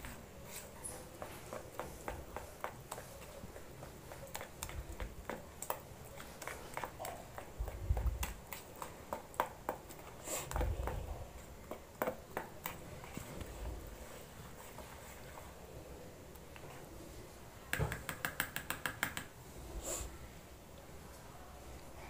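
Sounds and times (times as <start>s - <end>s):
whisk clicking against bowl: 17.7s - 19.3s.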